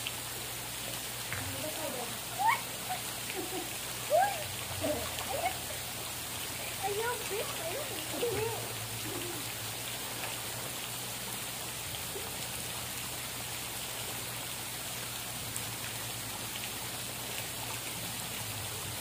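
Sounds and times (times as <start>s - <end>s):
water hissing: 0.0s - 12.4s.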